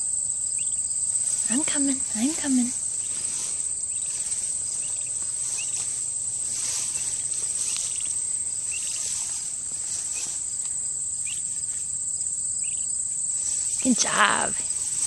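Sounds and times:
crickets trilling: 0.0s - 15.0s
turkey poult peeping: 0.5s - 1.4s, 2.9s - 11.9s, 12.5s - 13.8s.

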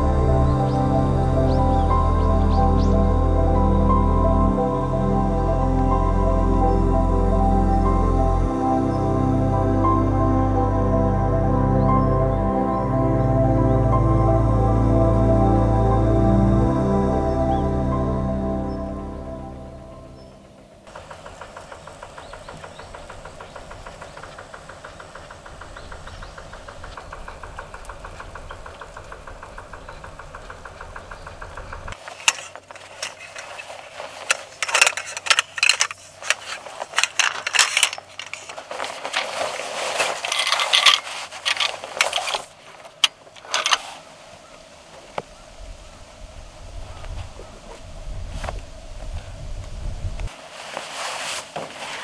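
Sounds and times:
boat engine puttering: 20.4s - 33.5s
strap buckles clicking: 31.9s - 43.8s
nylon bag rustling: 32.0s - 44.3s, 50.3s - 52.0s.

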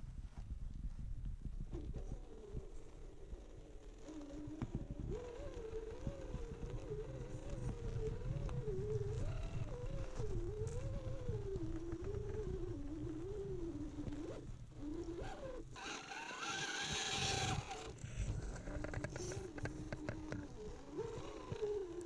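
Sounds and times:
rc car motor whining: 1.8s - 22.0s.

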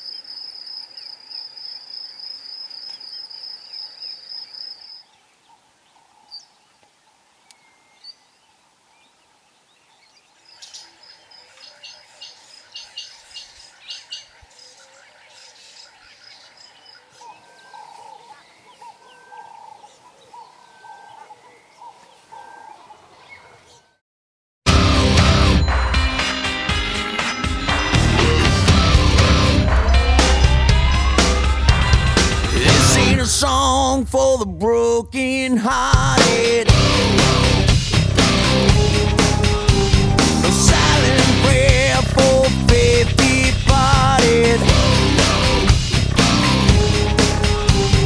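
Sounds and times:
birds chirping rapidly: 0.0s - 24.0s.

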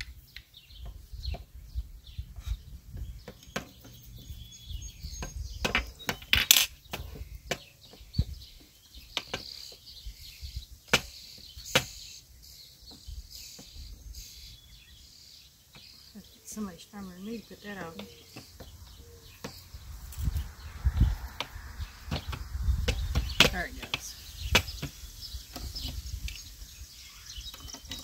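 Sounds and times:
parts clicking and knocking: 27.5s - 28.0s.

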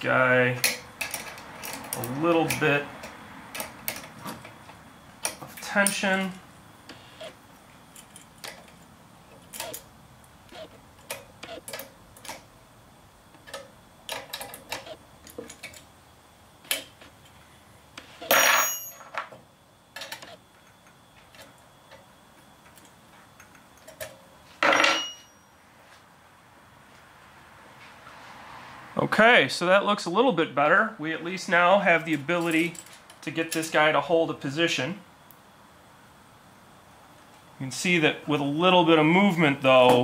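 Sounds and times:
wrenches clicking on metal: 0.6s - 4.2s, 9.4s - 9.9s.

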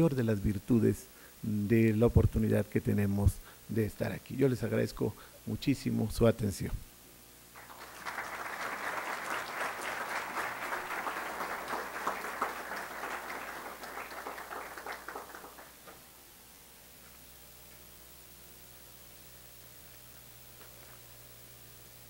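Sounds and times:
audience applauding: 7.6s - 16.0s.

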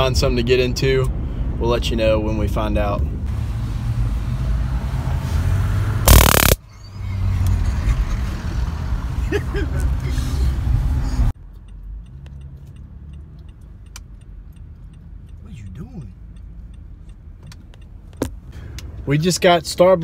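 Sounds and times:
car road and engine rumble: 0.0s - 20.0s
microphone noise burst: 6.1s - 6.6s.

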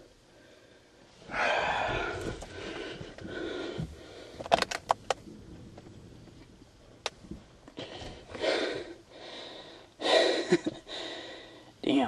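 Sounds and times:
man panting: 0.5s - 4.3s, 7.8s - 11.7s.

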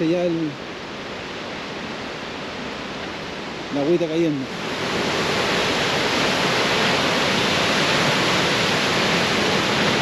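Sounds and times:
waterfall rushing: 0.0s - 10.0s.

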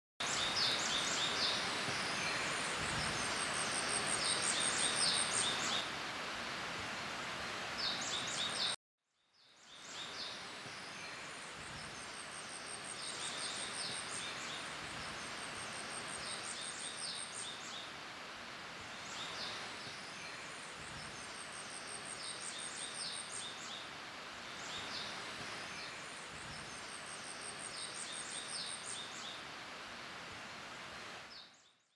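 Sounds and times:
small birds singing trills: 0.2s - 5.9s, 9.4s - 18.0s, 18.8s - 29.5s
steady hiss: 0.2s - 8.8s, 9.6s - 31.5s.

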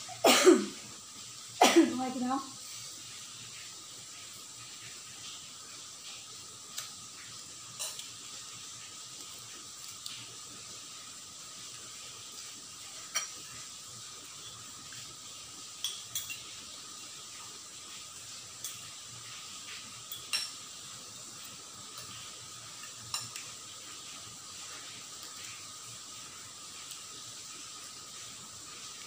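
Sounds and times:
steady background hiss: 0.0s - 29.0s
cutlery clinking on bowls: 7.8s - 8.1s, 13.0s - 13.5s, 15.8s - 16.5s, 20.1s - 20.6s, 22.8s - 23.5s.

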